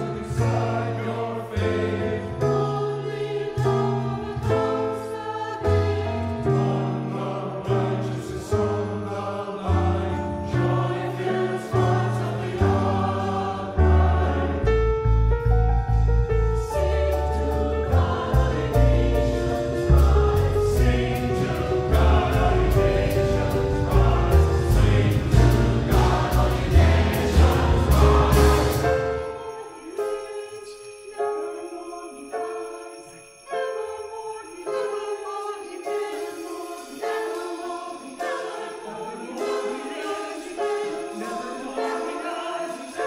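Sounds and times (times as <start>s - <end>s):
mixed choir singing: 0.0s - 15.0s, 16.6s - 43.0s
piano: 0.0s - 43.0s
upright double bass: 13.8s - 29.0s
drums: 17.4s - 29.2s.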